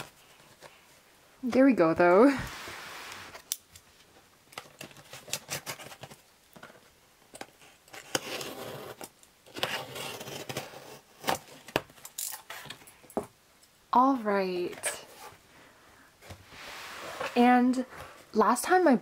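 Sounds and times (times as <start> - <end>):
cardboard rubbing and rustling: 4.8 - 6.2.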